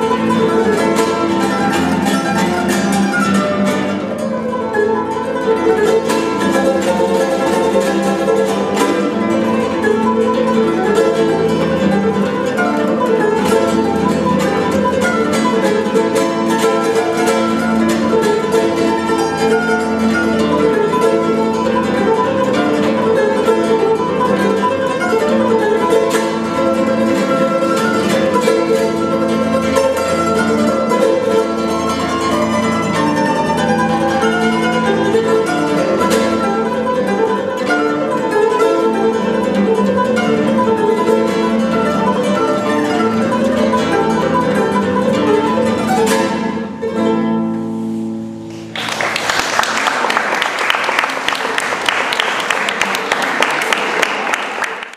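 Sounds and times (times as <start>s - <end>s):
charango picking and strumming: 0.0s - 54.9s
audience applause: 48.5s - 54.9s.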